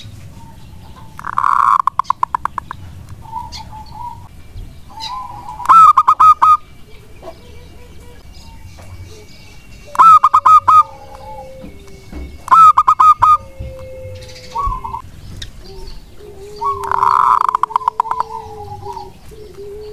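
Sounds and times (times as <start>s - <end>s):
dove cooing in staccato bursts: 0.6s - 19.9s
low drawn-out coo: 4.9s - 15.0s, 15.6s - 19.9s.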